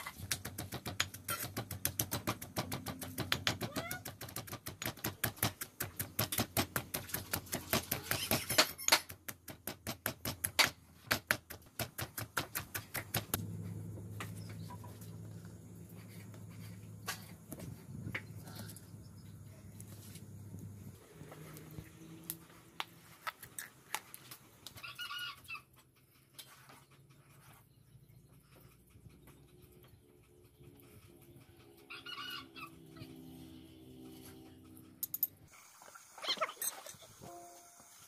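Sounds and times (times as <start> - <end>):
pestle pounding in stone mortar: 0.2 - 13.4
low steady hum: 13.2 - 23.2.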